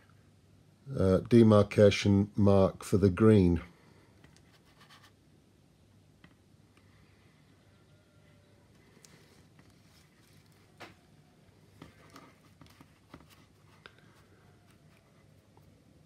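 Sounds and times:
faint clicks and rustles: 0:08.7 - 0:15.8.

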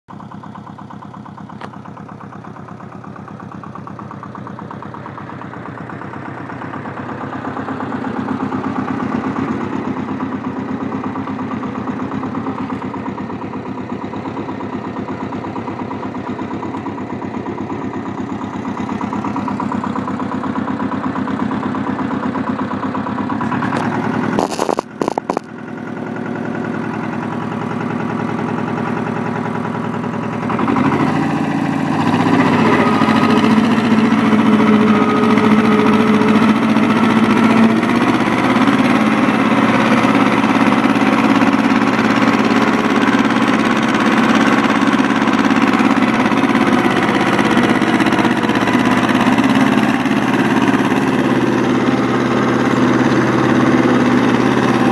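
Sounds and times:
tractor engine running: 0:00.1 - 0:54.9.

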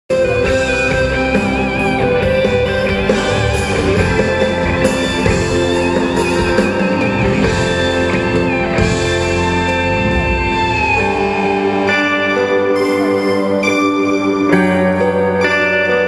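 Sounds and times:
lead line with vibrato: 0:00.1 - 0:16.0
live rock band: 0:00.1 - 0:16.0.

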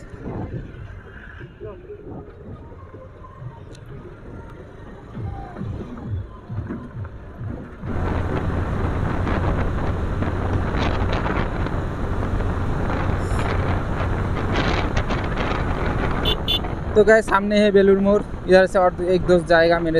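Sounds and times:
wind rush on microphone: 0:00.0 - 0:19.9
motorcycle engine: 0:07.0 - 0:17.0.

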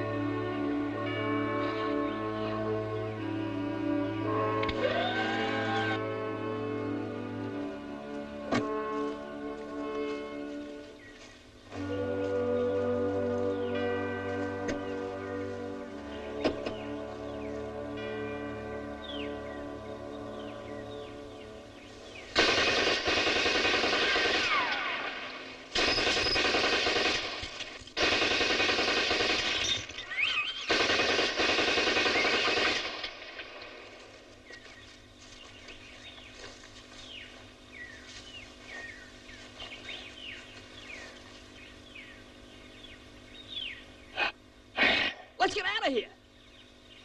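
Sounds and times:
machine-gun fire: 0:22.3 - 0:34.0.

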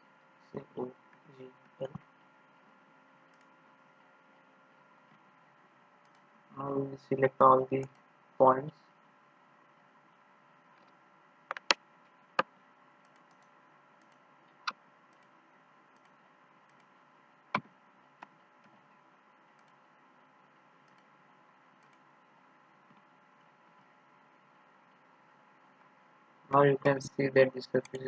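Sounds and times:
faint steady hum: 0:00.0 - 0:28.0
computer mouse clicking: 0:03.3 - 0:03.6, 0:06.0 - 0:06.3, 0:10.8 - 0:11.8, 0:12.4 - 0:18.9, 0:19.5 - 0:19.8, 0:20.8 - 0:21.1, 0:21.8 - 0:22.1.

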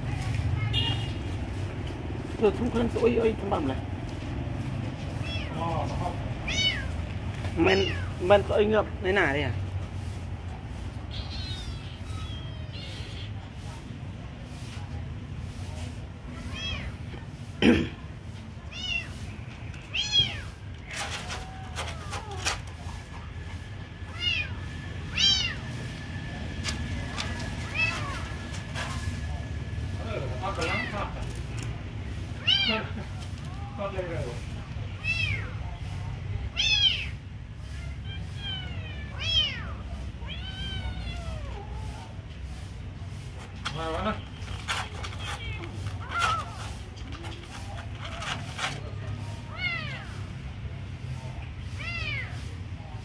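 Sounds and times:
kitten meowing: 0:05.2 - 0:05.6, 0:06.4 - 0:07.0, 0:11.1 - 0:13.4, 0:19.9 - 0:20.5, 0:24.1 - 0:25.7, 0:36.5 - 0:37.2
kittens meowing: 0:05.2 - 0:08.2, 0:10.9 - 0:13.6, 0:16.4 - 0:16.9, 0:18.7 - 0:19.3, 0:19.9 - 0:20.6, 0:24.0 - 0:26.0, 0:27.2 - 0:28.4, 0:32.4 - 0:33.0, 0:35.0 - 0:35.6, 0:36.5 - 0:41.8, 0:49.5 - 0:50.2.

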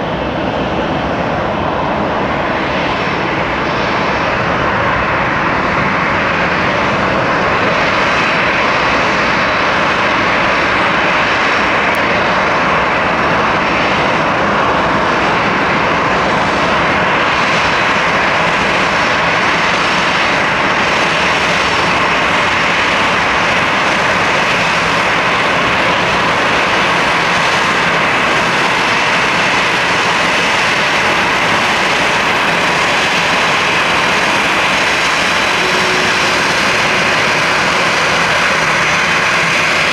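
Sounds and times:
jet engines roaring: 0:00.0 - 0:39.9
faint high whine: 0:31.0 - 0:39.9.

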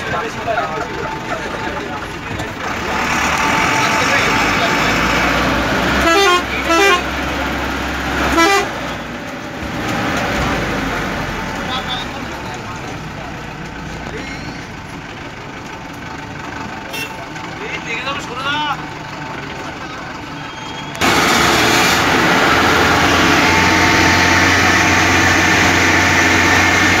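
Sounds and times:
vehicle engine and road noise: 0:00.0 - 0:27.0
vehicle horn toots: 0:06.0 - 0:07.1, 0:08.3 - 0:08.8.

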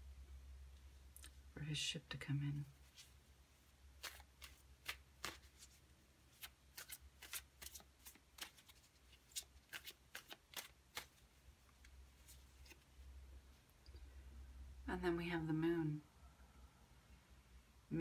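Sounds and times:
cards being shuffled: 0:04.0 - 0:13.0.

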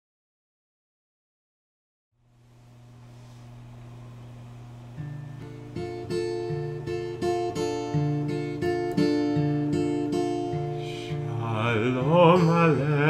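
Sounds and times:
acoustic guitar picking: 0:04.5 - 0:13.0
man singing: 0:10.7 - 0:13.0.

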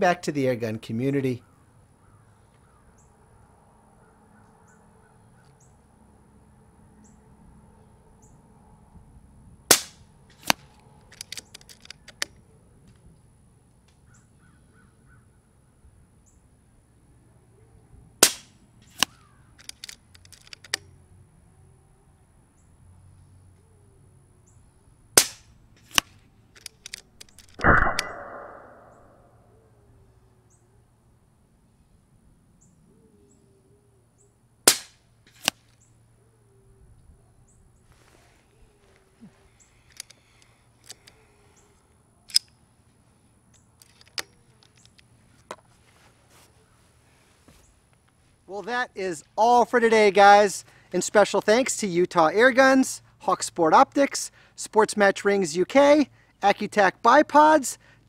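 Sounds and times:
loud thump with trailing rush: 0:27.6 - 0:29.2
pellet hitting target: 0:27.6 - 0:29.2
air rifle shot crack: 0:27.6 - 0:29.4.

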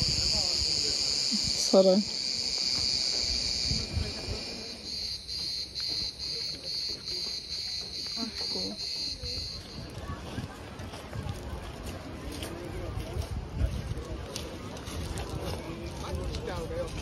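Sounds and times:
cicadas buzzing: 0:00.0 - 0:09.8.

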